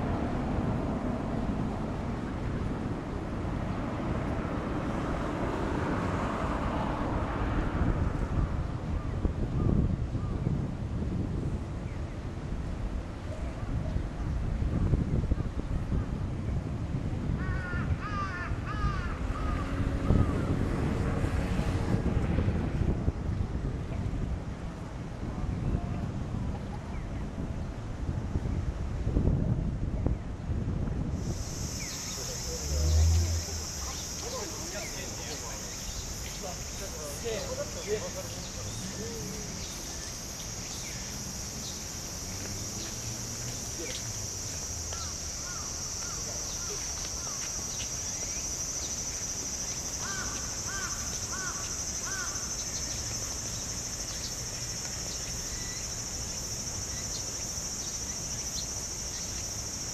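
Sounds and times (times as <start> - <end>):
low wind rumble on microphone: 0.0 - 52.3
crow cawing: 17.4 - 19.7, 50.0 - 52.5
cicadas buzzing: 17.4 - 21.9, 31.1 - 59.9.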